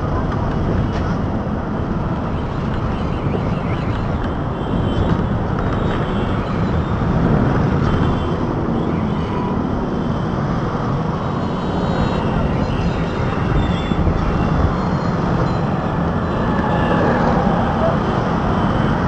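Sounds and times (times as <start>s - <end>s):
passing traffic: 0.0s - 19.0s
road noise low rumble: 0.0s - 19.0s.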